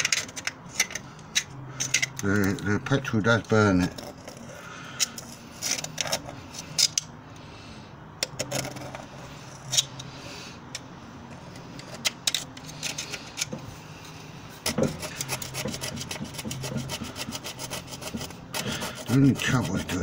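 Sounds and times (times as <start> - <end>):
metal scraping on metal: 14.6 - 20.0.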